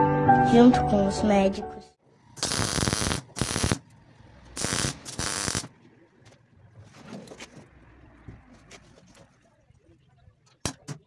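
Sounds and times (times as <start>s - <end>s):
crackling welding arc: 2.4s - 3.9s, 4.6s - 5.7s.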